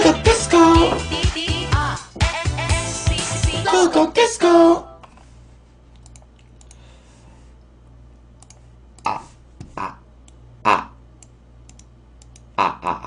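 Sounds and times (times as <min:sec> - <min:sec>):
computer mouse clicks: 0:06.0 - 0:06.8, 0:08.4 - 0:09.1, 0:11.2 - 0:12.5.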